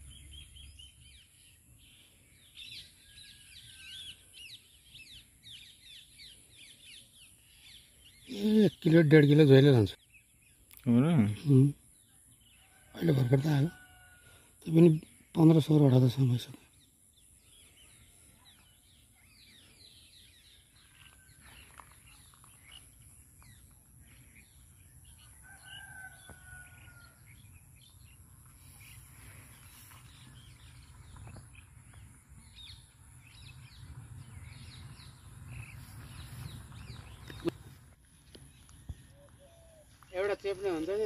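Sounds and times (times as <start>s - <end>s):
small birds chirping: 0.0s - 41.0s
rooster crowing: 25.4s - 27.3s.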